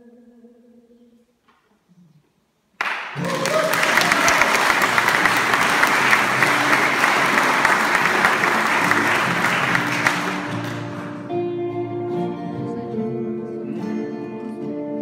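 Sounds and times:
audience applause: 2.8s - 11.3s
electric guitars: 3.2s - 15.0s.

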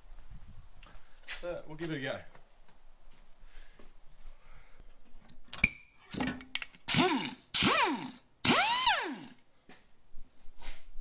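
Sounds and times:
power drill cutting steel: 6.9s - 9.4s.

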